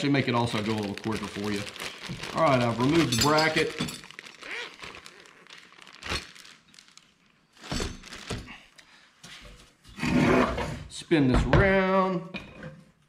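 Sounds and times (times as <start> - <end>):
plastic bag crinkling: 0.0 - 8.8.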